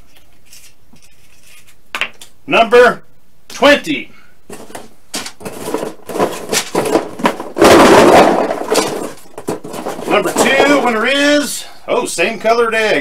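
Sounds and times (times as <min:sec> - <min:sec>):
plastic eggs rattling in a box: 0:04.5 - 0:11.4.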